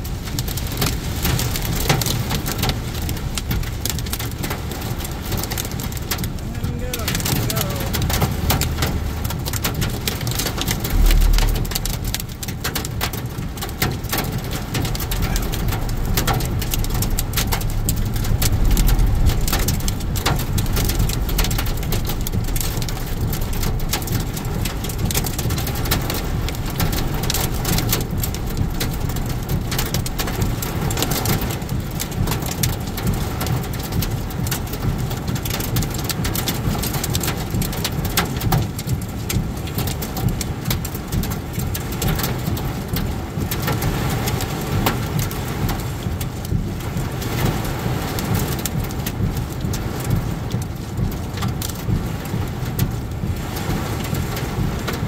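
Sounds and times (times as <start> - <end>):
deep rumble: 0.0 - 35.8
heavy rain on car roof: 0.0 - 55.0.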